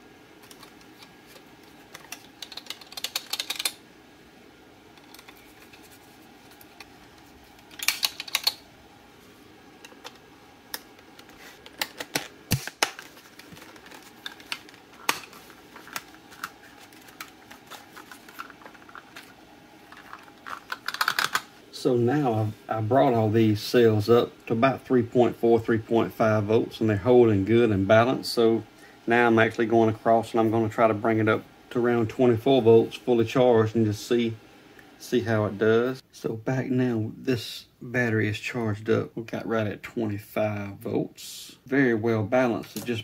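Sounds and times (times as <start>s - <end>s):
plastic parts clicking and rattling: 0.4s - 3.8s, 5.0s - 5.9s, 7.6s - 8.6s, 9.8s - 21.5s.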